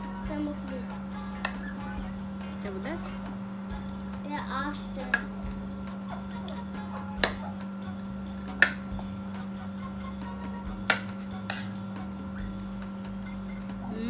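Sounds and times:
steady low hum: 0.0s - 14.0s
utensils clinking on plate: 10.9s - 11.9s.

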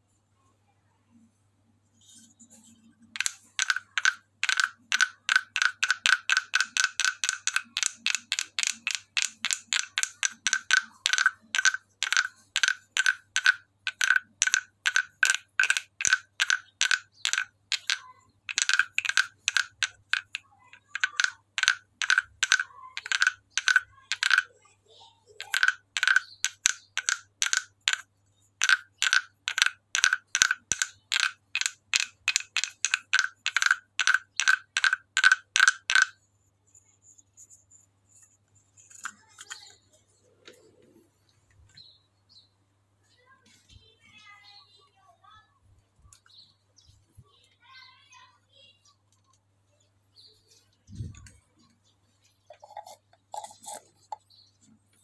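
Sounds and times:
wooden frog guiro knocks: 3.2s - 24.5s, 25.4s - 36.2s.

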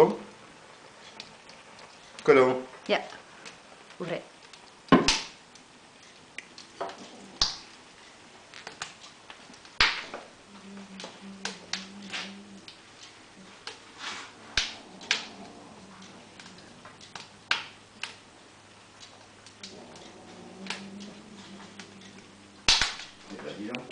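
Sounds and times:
wood fire crackling: 0.0s - 23.9s.

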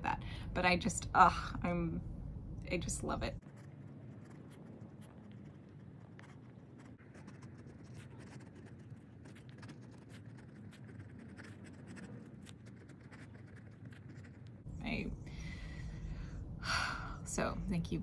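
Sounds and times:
fountain pen scratching paper: 3.4s - 14.6s.

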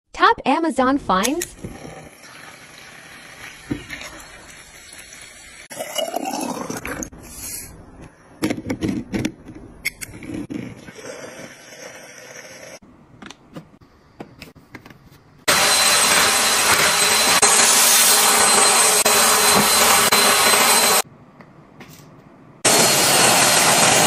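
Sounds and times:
vacuum cleaner motor running: 15.5s - 21.0s, 22.7s - 24.0s.

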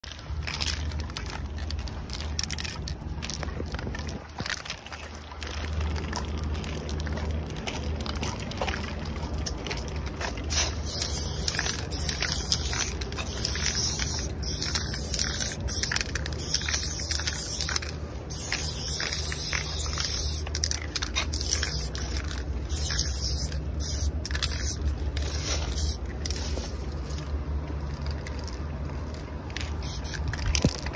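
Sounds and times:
low steady rumble: 0.0s - 30.9s
spray paint can hissing: 10.2s - 27.0s, 29.6s - 30.9s.

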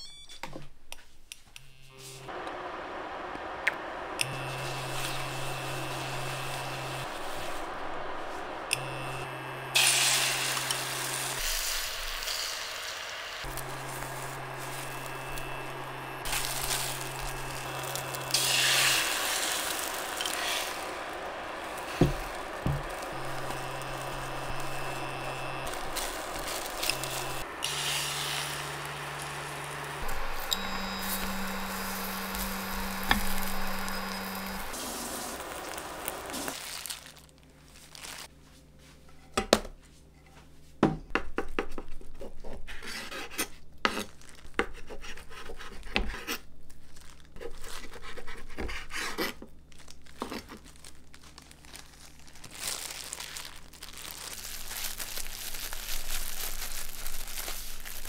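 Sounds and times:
egg sizzling in frying pan: 4.6s - 37.0s
plastic gloves crinkling: 9.8s - 12.8s, 13.4s - 38.7s, 43.9s - 45.2s, 46.5s - 58.0s
low steady hum: 13.4s - 36.5s.

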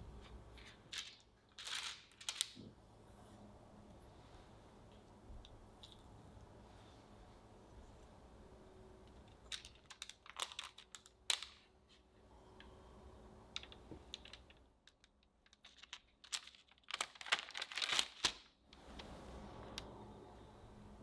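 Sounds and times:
parchment paper crinkling: 0.2s - 2.7s, 9.1s - 12.1s, 13.5s - 19.2s.

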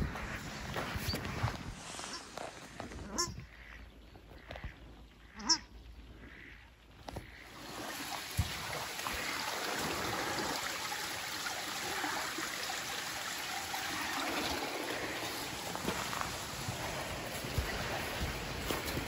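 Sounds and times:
flowing water hiss: 7.2s - 19.0s.

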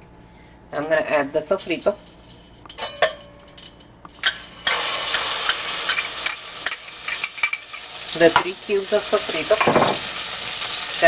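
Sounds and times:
loud oil sizzle: 1.6s - 11.0s.

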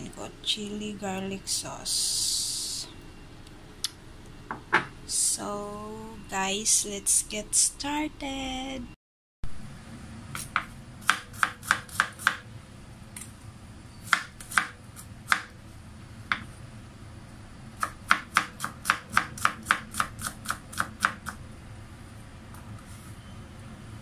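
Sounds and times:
knife chopping on wooden board: 10.4s - 12.4s.

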